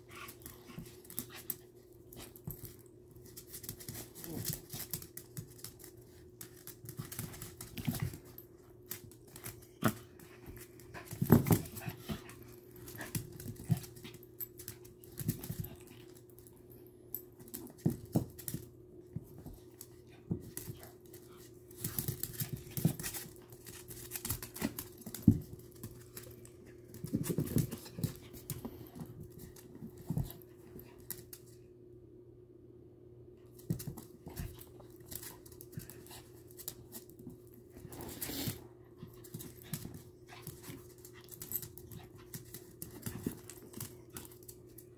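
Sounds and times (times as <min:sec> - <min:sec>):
dogs scuffling: 0:00.0 - 0:16.5, 0:17.1 - 0:31.6, 0:33.6 - 0:44.9
claws clicking on hard floor: 0:17.4 - 0:31.6.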